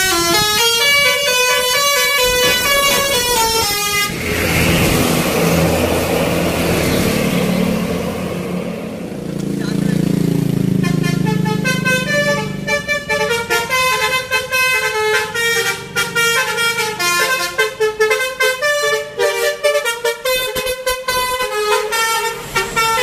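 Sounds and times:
musical bus horn melody: 0.0s - 5.6s, 10.7s - 23.0s
low drone: 3.8s - 9.7s.

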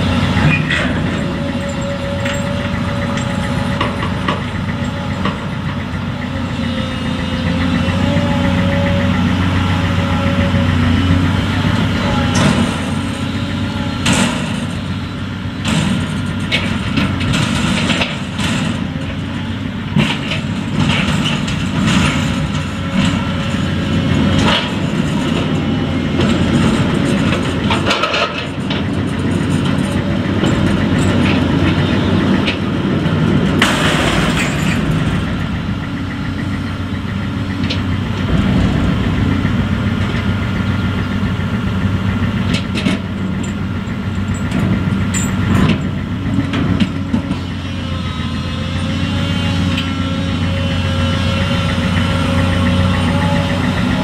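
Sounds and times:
excavator diesel engine running: 0.0s - 54.0s
metal wagon clanks and knocks: 0.4s - 6.4s, 12.2s - 47.5s.

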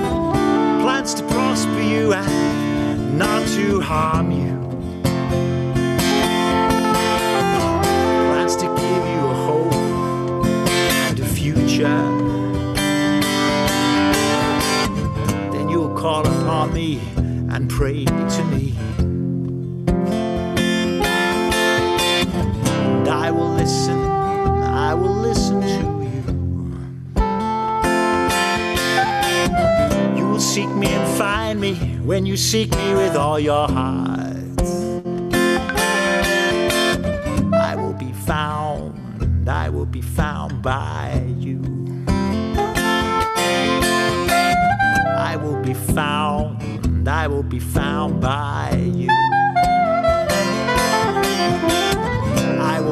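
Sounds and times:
soprano saxophone melody: 0.0s - 3.6s, 4.9s - 16.0s, 20.6s - 31.6s, 35.3s - 38.6s, 42.2s - 46.4s, 49.0s - 52.9s
strummed acoustic guitar: 0.0s - 52.9s.

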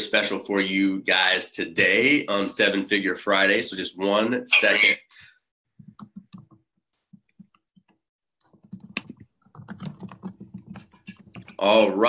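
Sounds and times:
typing on a keyboard: 5.9s - 6.6s, 7.2s - 11.6s.

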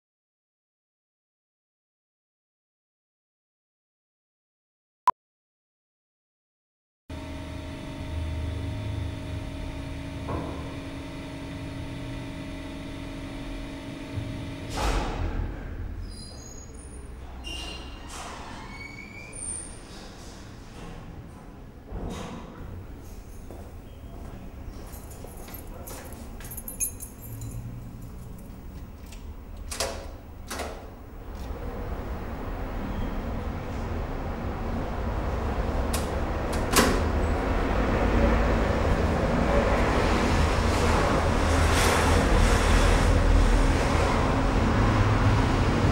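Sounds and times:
mechanical hum: 7.1s - 45.9s
traffic rumble: 22.6s - 45.9s
metal keys jingling: 24.7s - 29.2s.

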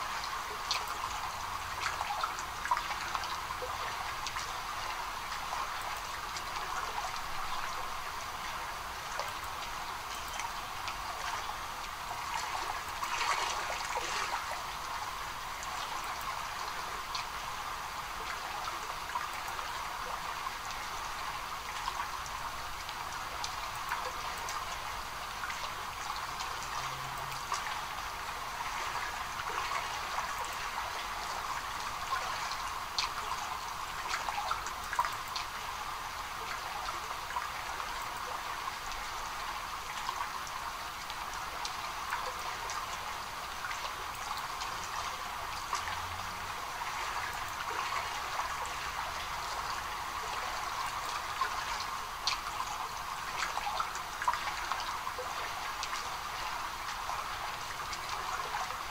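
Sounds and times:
trickling running water: 0.0s - 58.9s.

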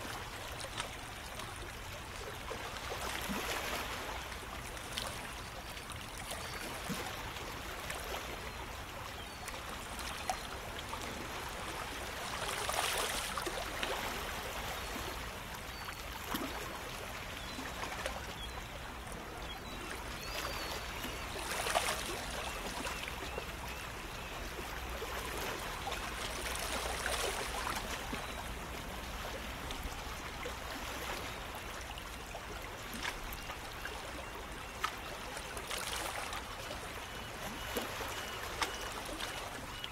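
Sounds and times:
water lapping among rocks: 9.2s - 15.2s, 19.6s - 29.9s.

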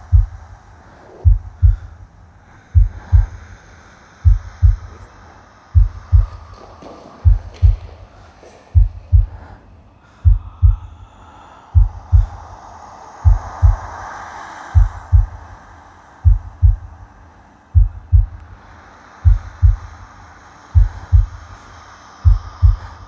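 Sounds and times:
heartbeat thumps: 0.0s - 0.4s, 1.2s - 1.9s, 2.8s - 3.4s, 4.2s - 5.1s, 5.8s - 8.0s, 8.8s - 9.6s, 10.2s - 10.9s, 11.8s - 12.4s, 13.2s - 13.9s, 14.8s - 15.4s, 16.2s - 16.9s, 17.8s - 18.4s, 19.2s - 19.9s, 20.8s - 21.4s, 22.2s - 23.0s
soft airy swell: 0.0s - 23.0s.

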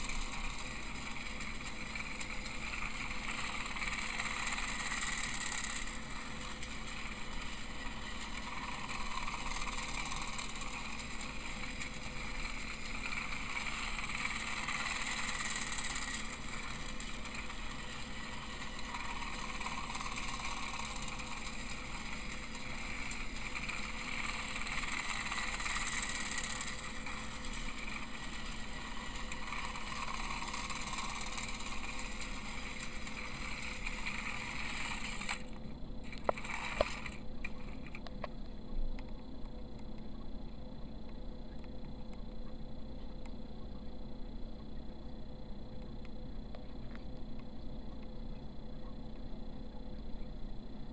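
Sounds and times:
toy train motor whirring: 0.0s - 38.1s.

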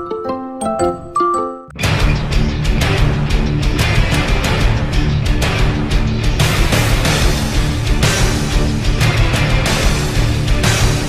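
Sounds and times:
bell-like keyboard jingle: 0.0s - 1.8s
loud dense background music: 1.8s - 11.0s.

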